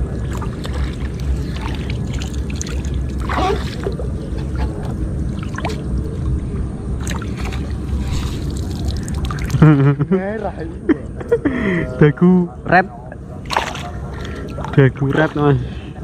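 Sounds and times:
water sloshing and splashing: 0:00.0 - 0:10.6, 0:13.4 - 0:16.0
low rumble: 0:00.0 - 0:11.3.

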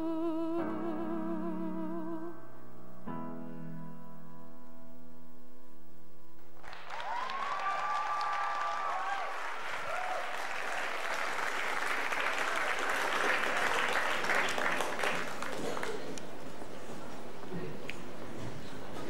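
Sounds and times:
person singing with piano: 0:00.0 - 0:02.5
audience applause: 0:06.6 - 0:16.4.

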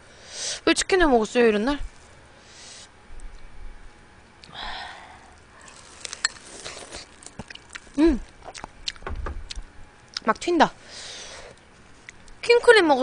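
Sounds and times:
wet sucking and chewing: 0:04.4 - 0:10.3
breath: 0:04.5 - 0:05.7, 0:10.8 - 0:11.6
crab shell cracking: 0:05.2 - 0:10.3.

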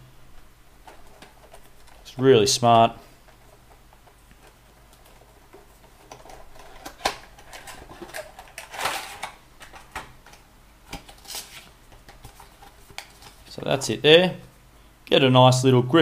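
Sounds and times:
card and paper rustling: 0:10.9 - 0:13.5.

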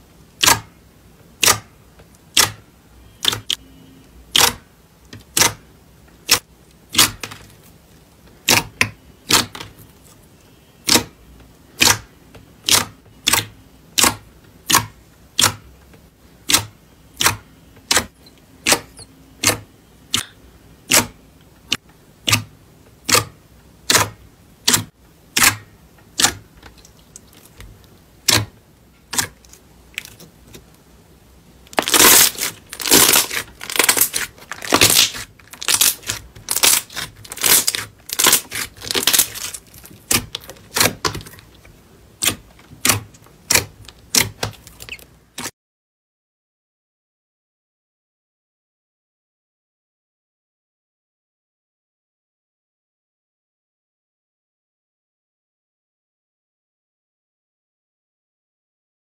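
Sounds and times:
slime crackling: 0:31.7 - 0:45.0.

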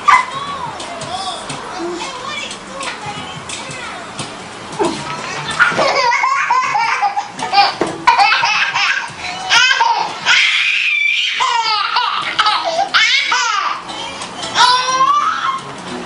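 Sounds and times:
baby laughing and squealing: 0:04.8 - 0:15.7.

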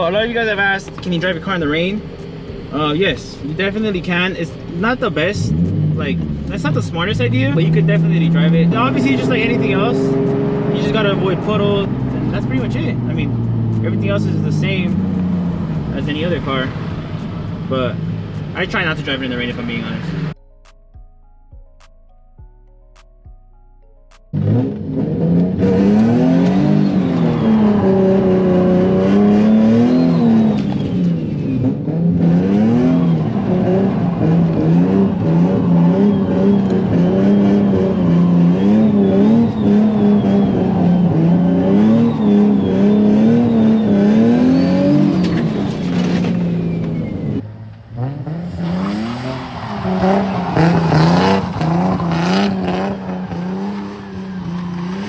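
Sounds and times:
car engine revving: 0:00.0 - 0:20.4, 0:24.2 - 0:55.0.

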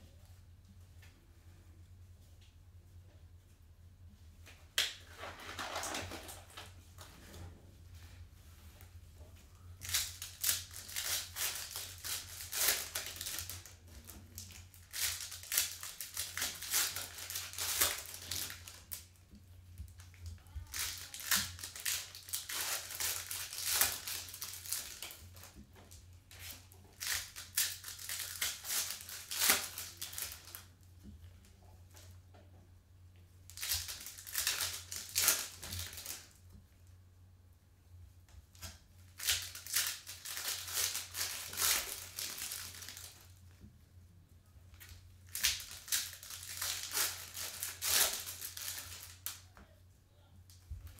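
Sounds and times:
foil wrappers crinkling and tearing: 0:09.8 - 0:19.2, 0:19.8 - 0:30.7, 0:33.5 - 0:36.4, 0:38.6 - 0:43.4, 0:44.7 - 0:49.5.

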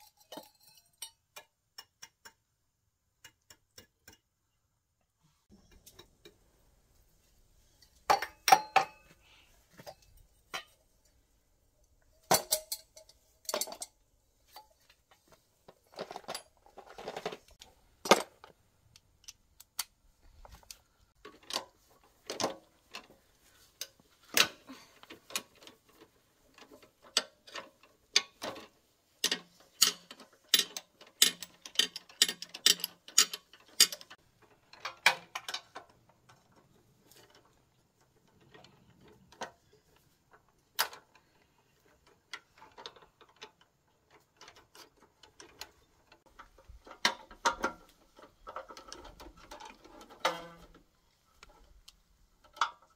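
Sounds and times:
metal tools clinking and knocking: 0:00.0 - 0:02.5, 0:07.8 - 0:11.2, 0:12.1 - 0:18.5, 0:21.2 - 0:50.8.

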